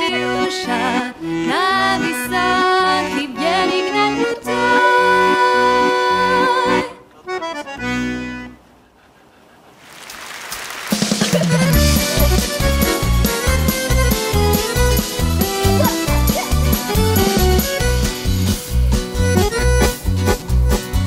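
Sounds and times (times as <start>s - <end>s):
accordion music: 0.0s - 8.8s, 11.0s - 21.0s
music with strong regular beat: 10.9s - 21.0s.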